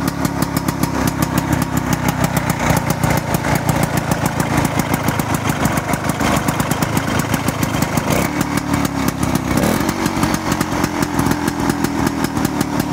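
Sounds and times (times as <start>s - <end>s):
snowmobile engine running: 0.0s - 12.9s.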